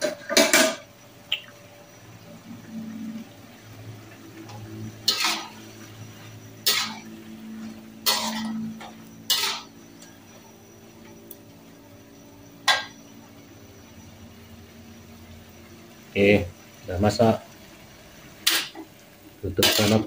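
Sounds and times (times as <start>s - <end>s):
steady low hum: 0.0s - 20.0s
metal spatula scraping wok: 4.4s - 9.7s, 19.6s - 20.0s.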